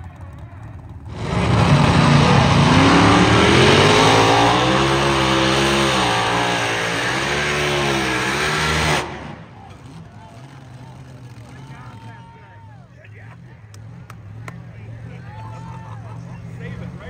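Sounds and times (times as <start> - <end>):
truck engine at full throttle: 0.0 - 17.0
loud rushing noise: 1.1 - 9.6.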